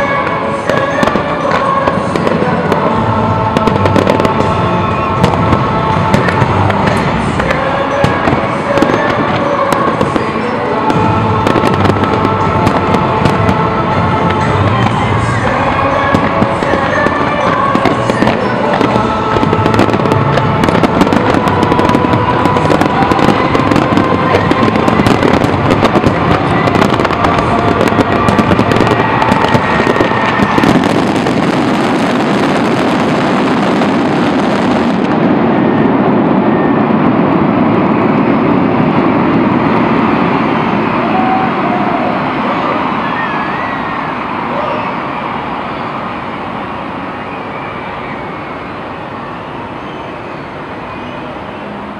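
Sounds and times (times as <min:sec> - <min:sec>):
fireworks crackling and banging: 0:00.0 - 0:47.4.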